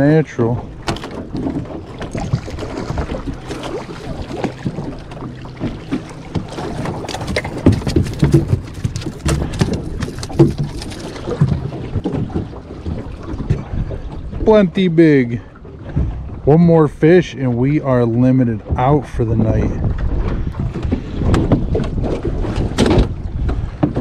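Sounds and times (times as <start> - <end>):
water noise: 0.0 - 24.0
wind on microphone: 0.0 - 24.0
fish dropped on boat floor: 6.9 - 12.4.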